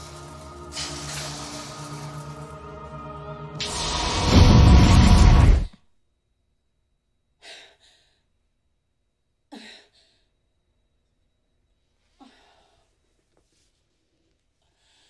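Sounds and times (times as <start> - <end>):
woman gasping breaths: 12.2 - 13.0, 14.6 - 15.0.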